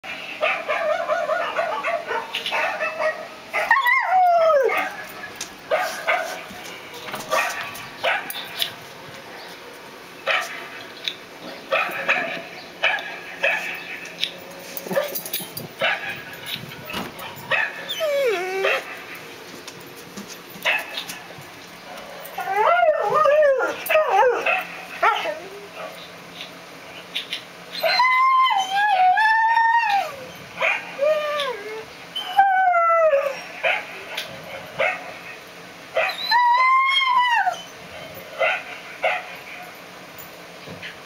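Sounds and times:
dog barking: 0.4 - 3.7, 5.7 - 6.4, 7.3 - 8.3, 11.7 - 13.8, 15.8 - 16.2, 17.2 - 17.8, 34.8 - 35.1, 38.4 - 39.3
dog howling: 3.6 - 5.1, 17.5 - 18.9, 22.4 - 25.8, 27.8 - 33.5, 36.0 - 37.7
dog yipping: 17.2 - 19.0, 22.4 - 26.0, 36.0 - 37.8.

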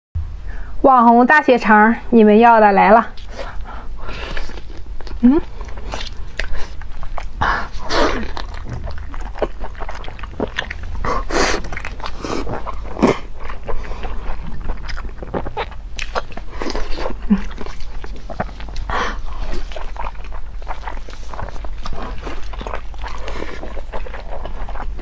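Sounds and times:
low steady hum: 0.2 - 25.0
wet biting and chewing: 3.1 - 25.0.

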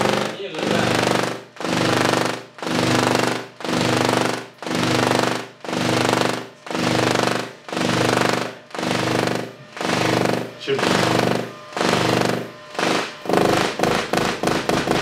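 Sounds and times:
tesla coil sparks buzzing: 4.7 - 15.0.

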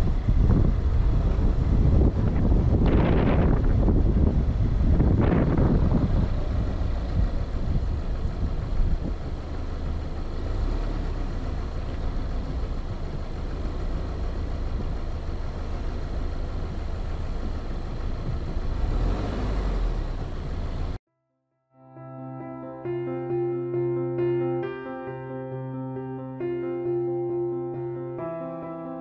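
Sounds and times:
car engine rumbling: 0.0 - 21.0
tyres on rough dirt track: 0.0 - 21.0.

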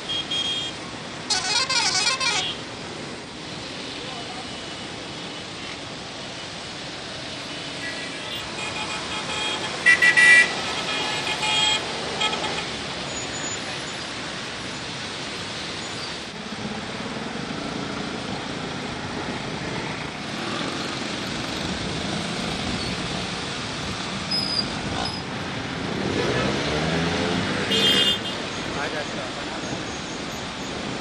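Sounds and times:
hum of engines: 0.0 - 31.0
car horns honking: 1.3 - 2.6, 7.9 - 12.7, 27.6 - 28.4.

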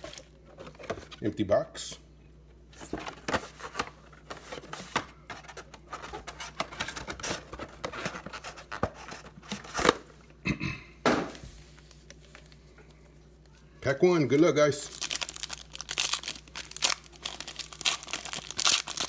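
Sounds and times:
cardboard and foil packs rustling: 2.8 - 10.0, 14.8 - 19.0.

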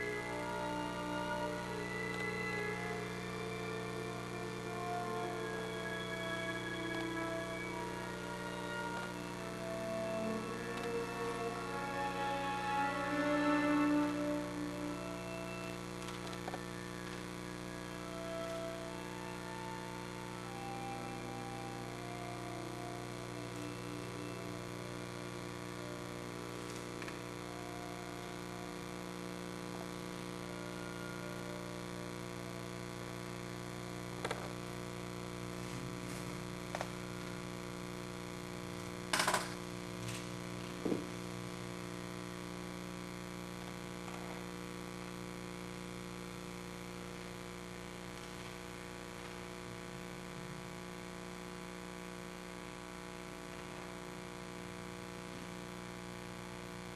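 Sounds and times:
electrical mains hum: 0.0 - 56.9.

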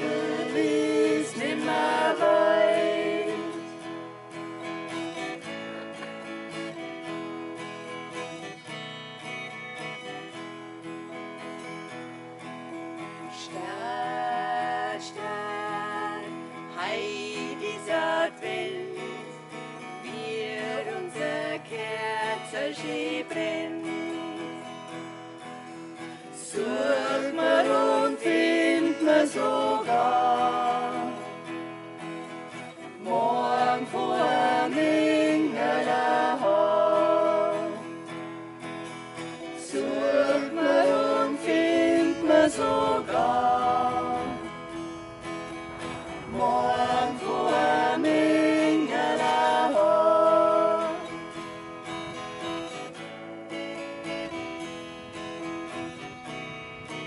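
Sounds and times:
voices singing: 0.0 - 4.1, 13.2 - 24.7, 26.0 - 38.3, 39.1 - 51.6
acoustic guitar strumming: 0.0 - 57.0.

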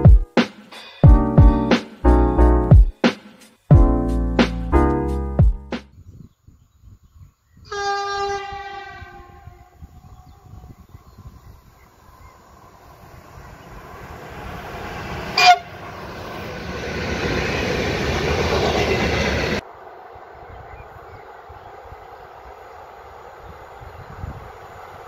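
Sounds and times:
locomotive horn blast: 7.7 - 9.8, 15.4 - 15.8
freight train passing: 7.7 - 25.0.

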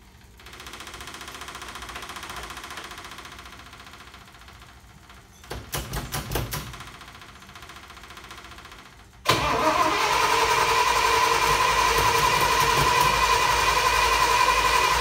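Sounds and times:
truck engine cranking: 9.3 - 15.0.

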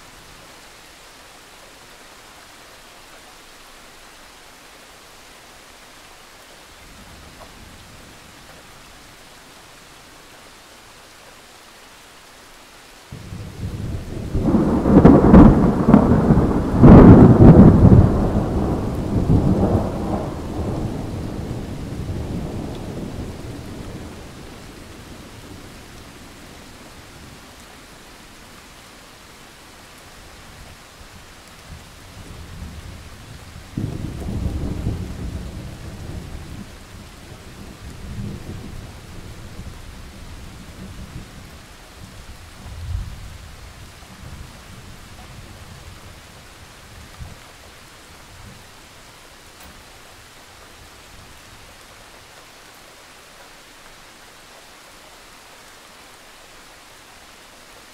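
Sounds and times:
steady rain: 0.0 - 57.9
thunder rumbling: 13.2 - 27.6, 31.6 - 47.4.

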